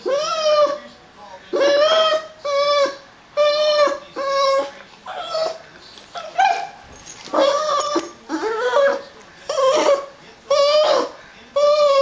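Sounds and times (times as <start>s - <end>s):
dog whining: 0.0s - 0.9s, 1.5s - 12.0s.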